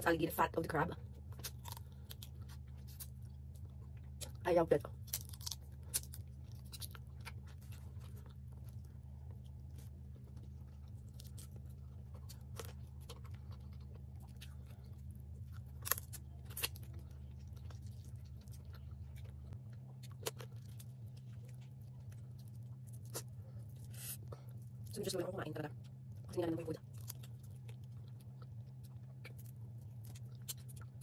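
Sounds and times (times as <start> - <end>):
low hum: 0.0 - 31.0
chewing and mouth noises: 1.0 - 31.0
crab shell cracking: 5.0 - 7.4, 15.6 - 17.0.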